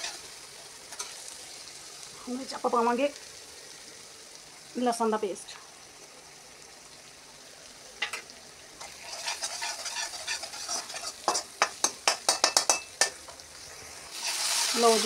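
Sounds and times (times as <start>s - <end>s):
food sizzling in oil: 0.0s - 15.0s
spoon scraping metal pan: 8.8s - 13.4s, 14.2s - 14.9s.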